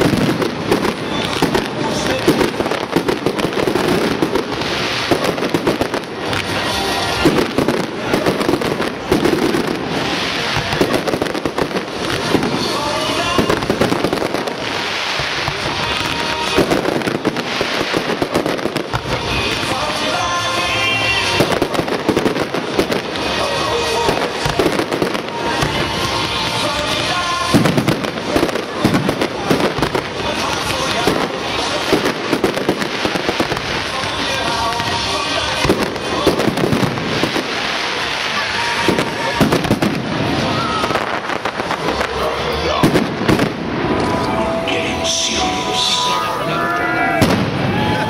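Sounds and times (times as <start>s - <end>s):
fireworks bangs and crackles: 0.0s - 48.0s
music playing: 0.0s - 48.0s.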